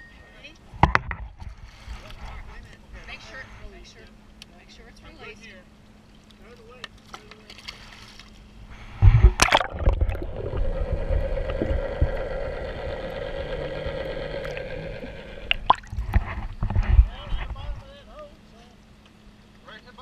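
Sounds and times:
steady hum: 8.5s - 19.5s
underwater gurgling: 8.7s - 17.0s
splash into water: 9.1s - 10.2s.

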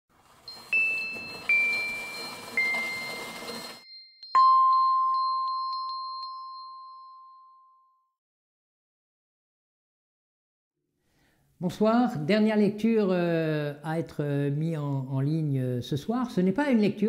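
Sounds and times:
descending chime notes: 0.5s - 7.7s
low bell-like ding: 4.1s - 8.0s.

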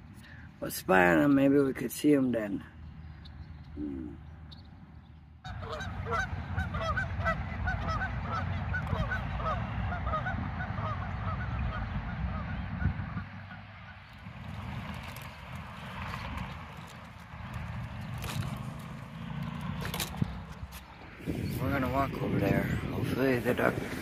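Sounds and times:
geese honking: 5.4s - 19.4s.

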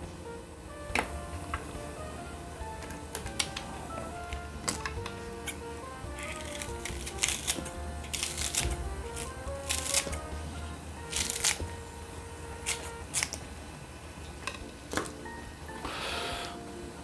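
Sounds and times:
soft background music: 0.0s - 17.0s
scissors snipping onion: 4.6s - 10.3s, 11.0s - 11.7s, 12.6s - 13.4s.

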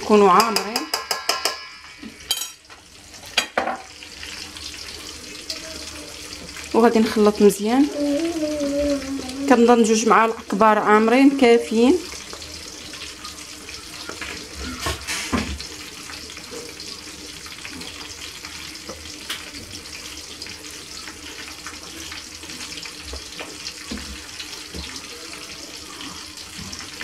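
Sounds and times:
spatula knocking bowl: 0.3s - 1.7s.

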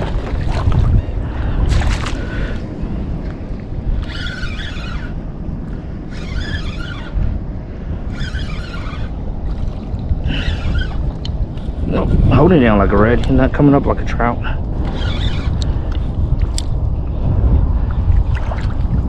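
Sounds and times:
wind on microphone: 0.0s - 19.0s
fishing reel whirring: 3.9s - 7.4s, 8.0s - 11.3s, 14.8s - 16.7s.

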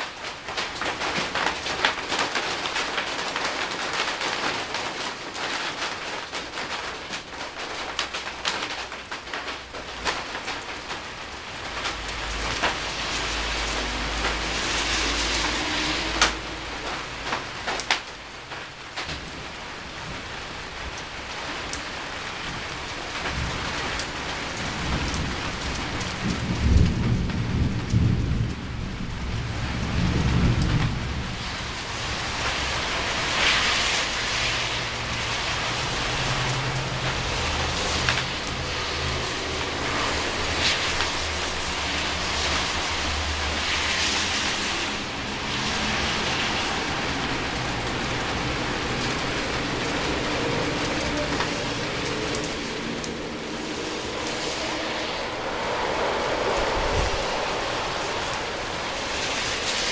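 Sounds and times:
steady rain: 0.0s - 59.9s
thunder rumbling: 10.1s - 18.2s, 22.4s - 59.9s.

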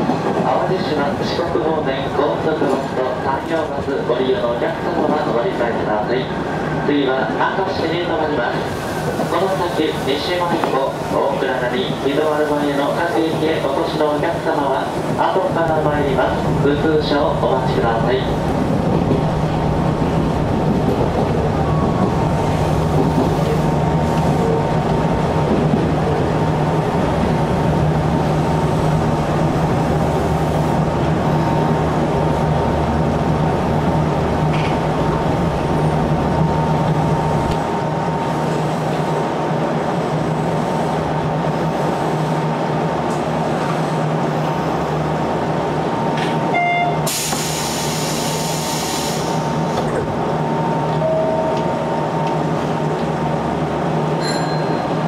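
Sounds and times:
train wheels rumbling on rail: 0.0s - 55.0s
short tone: 46.5s - 47.1s, 50.8s - 52.1s
hiss: 47.1s - 49.6s.

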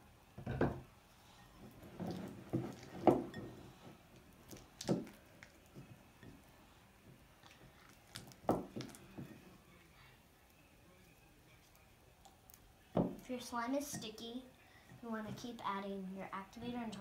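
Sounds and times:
spatula squishing thick slime: 1.7s - 3.4s.

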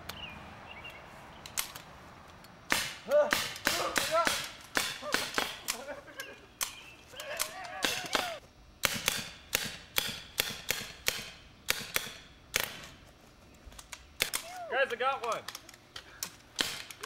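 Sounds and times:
sharp gunshots: 2.7s - 5.7s.

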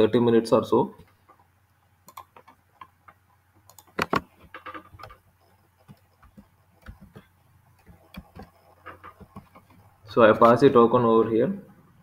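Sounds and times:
mouse and keyboard clicks: 2.1s - 9.8s.

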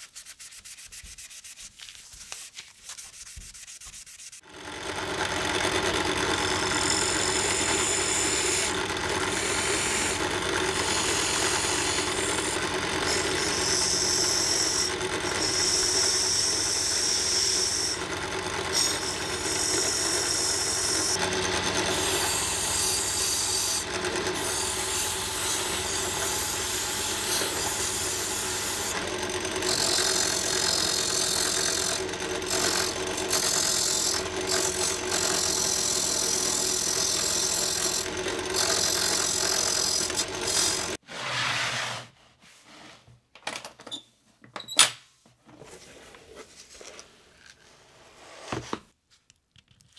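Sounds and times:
power sander motor hum: 4.5s - 41.0s.

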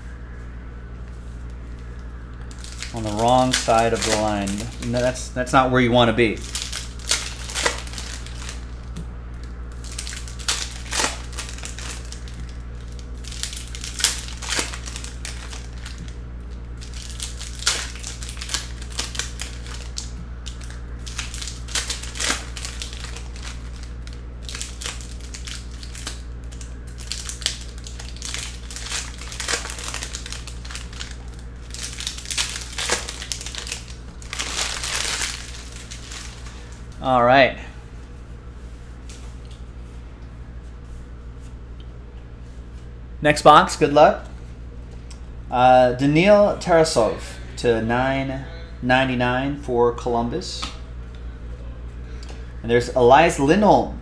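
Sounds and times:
low hum: 0.0s - 54.0s
foil wrappers crinkling: 1.7s - 5.2s, 6.1s - 37.0s.

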